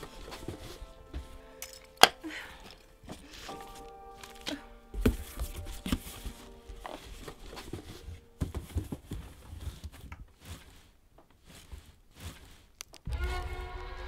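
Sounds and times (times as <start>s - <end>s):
hangers being moved: 0.0s - 4.6s
clothes rustling: 0.0s - 13.1s.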